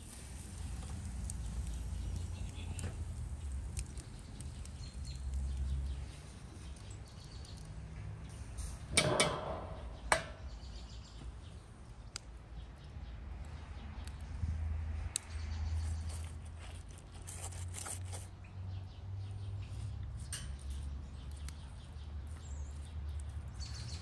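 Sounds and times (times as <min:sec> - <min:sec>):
sharp metallic clank: 0:08.9 - 0:10.4
metal spit scraping on brick: 0:16.1 - 0:18.3.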